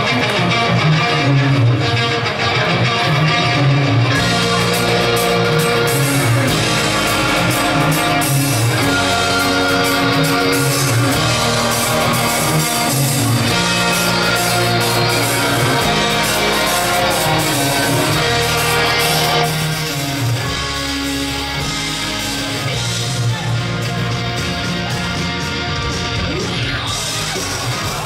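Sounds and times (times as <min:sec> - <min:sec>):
loud rock music with guitar: 0:00.0 - 0:28.0.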